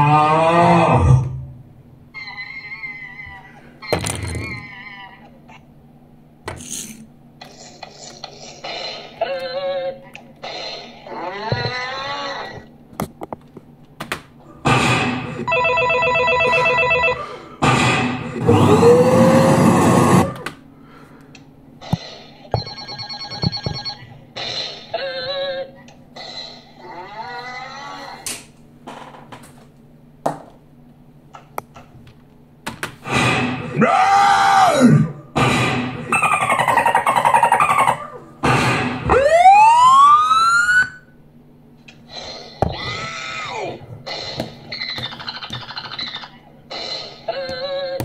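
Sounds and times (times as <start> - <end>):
moo-like sound effect: 0.0 - 1.5, 17.6 - 20.4
loud noisy burst: 17.6 - 20.4
warbling cartoon parrot voice: 36.1 - 38.2.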